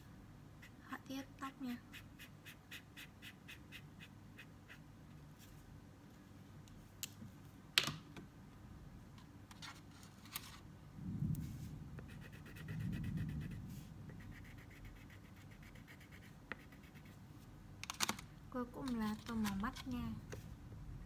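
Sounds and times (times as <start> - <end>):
crayon scratching on paper: 1.7 - 4.8, 12.0 - 17.2.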